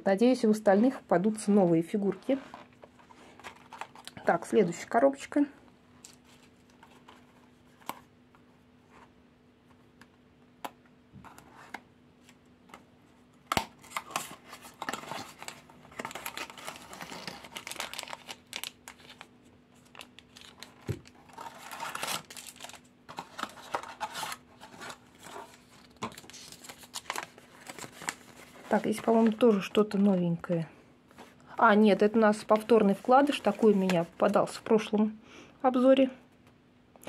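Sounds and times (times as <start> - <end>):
plastic packet crinkling: 13.8 - 30.1.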